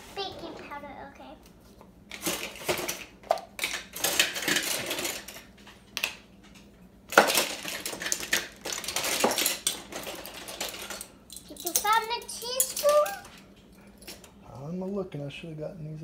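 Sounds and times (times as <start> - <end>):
utensils being rummaged: 2.1 - 5.8, 7.1 - 14.4
kitchen items clattering: 2.1 - 6.1, 7.1 - 14.4.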